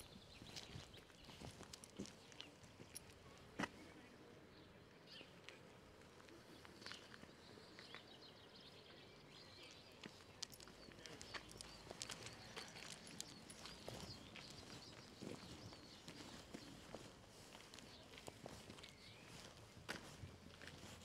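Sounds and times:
soft footstep clicks: 10.0 - 21.0.

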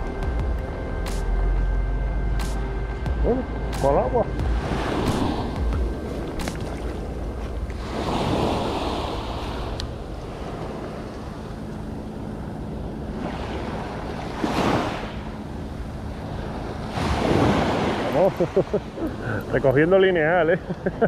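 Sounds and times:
sea waves washing on shore: 3.2 - 21.0
wind noise on microphone: 4.3 - 11.2.

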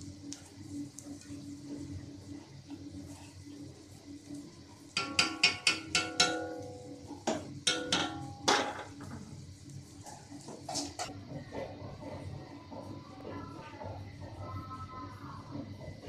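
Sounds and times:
knife knocking on iron pan: 5.0 - 9.0.

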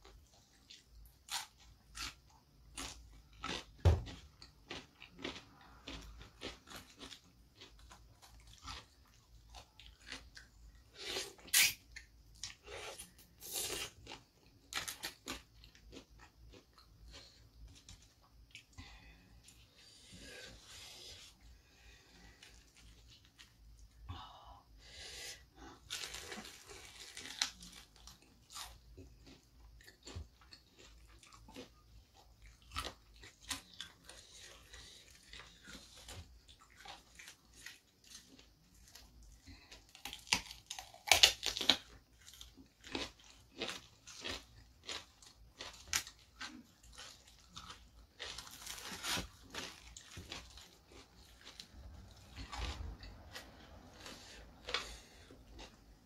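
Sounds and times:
crunchy bites: 0.0 - 18.8, 25.7 - 56.0
wet chewing: 25.9 - 56.0.

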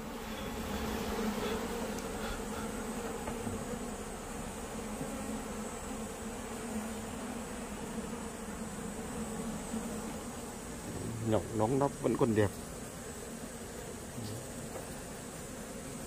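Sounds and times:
bees buzzing: 0.0 - 16.0.

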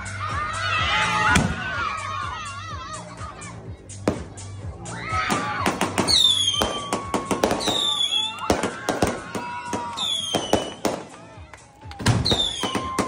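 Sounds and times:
fireworks cracking and popping: 5.3 - 13.0
fireworks whistles falling in pitch: 6.1 - 9.1, 9.7 - 10.9, 12.2 - 13.0.

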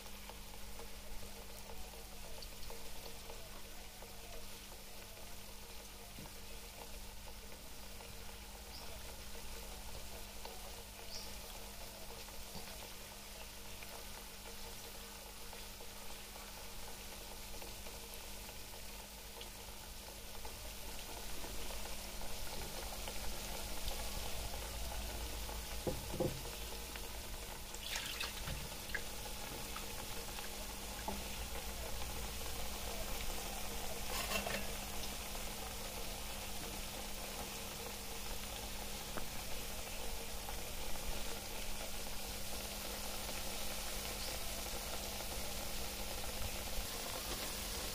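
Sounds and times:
hot oil sizzling: 0.0 - 47.9.

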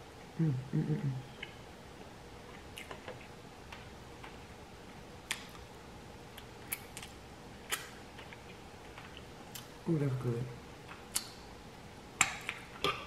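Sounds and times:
faint sharp eating clicks: 10.9 - 11.4.

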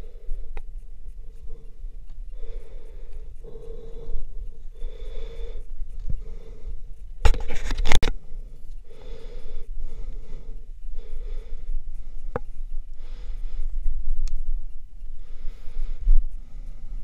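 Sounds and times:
person breathing heavily: 0.0 - 17.0
scrape and clatter on rock: 7.2 - 8.1.

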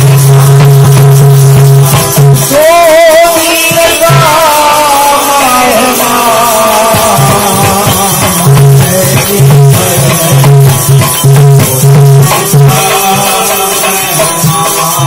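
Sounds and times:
low drum beat: 0.0 - 2.8
devotional music: 0.0 - 15.0
hand cymbals clashing: 0.0 - 15.0.

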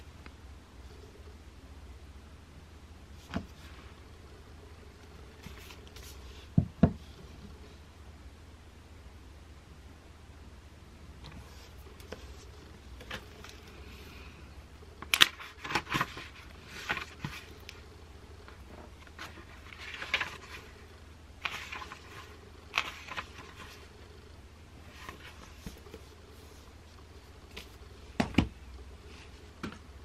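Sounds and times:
low steady hum: 0.0 - 30.0
book pages flipping: 5.4 - 6.3, 15.0 - 17.8, 18.4 - 20.8, 21.4 - 23.9, 24.8 - 27.8.

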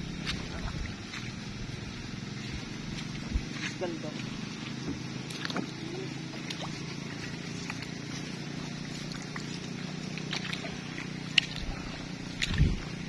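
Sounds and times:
small engine humming: 0.0 - 13.0.

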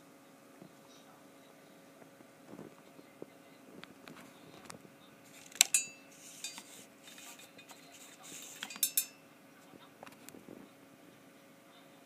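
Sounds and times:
sharp metallic clinks: 5.6 - 6.7, 8.6 - 9.2.

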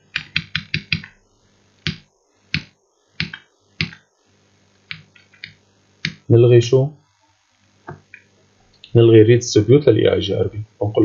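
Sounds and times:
keyboard keys clicking: 0.1 - 1.1.

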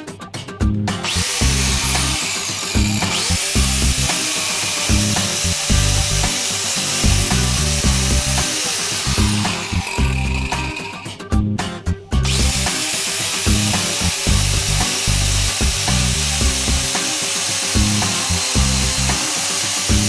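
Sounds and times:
background music with steady beat: 0.0 - 20.0
angle grinder running: 1.0 - 11.2, 12.2 - 20.0.

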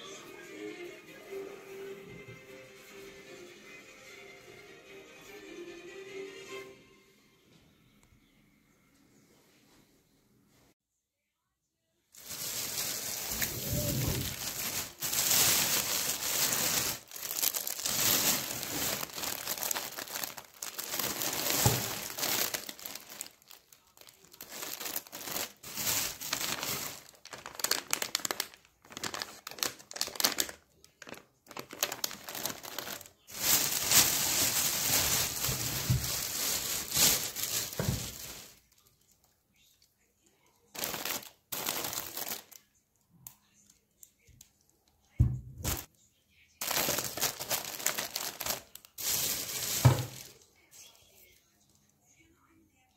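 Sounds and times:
plastic bags crinkling: 12.2 - 38.9, 40.7 - 42.7, 45.6 - 45.9, 46.6 - 50.6.

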